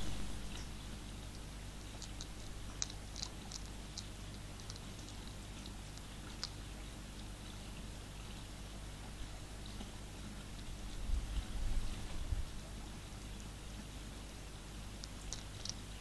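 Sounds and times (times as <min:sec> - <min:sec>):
camera low hum: 0:00.0 - 0:08.5
hedgehog crunching food: 0:00.0 - 0:16.0.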